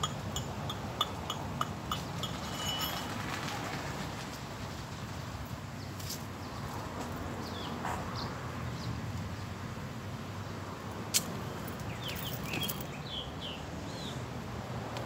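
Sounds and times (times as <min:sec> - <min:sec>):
outdoor background hiss: 0:00.0 - 0:15.0
birds chirping: 0:11.7 - 0:14.2.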